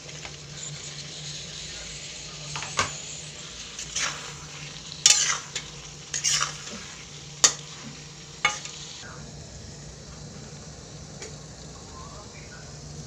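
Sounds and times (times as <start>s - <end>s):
metal spoon scraping wok: 0.0s - 9.0s
food sizzling: 0.0s - 13.0s.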